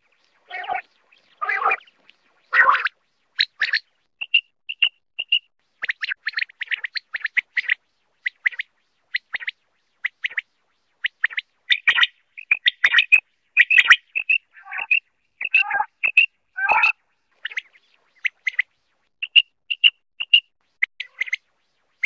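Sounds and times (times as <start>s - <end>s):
quail calling: 0.4s - 8.7s, 11.2s - 18.6s, 21.0s - 21.4s.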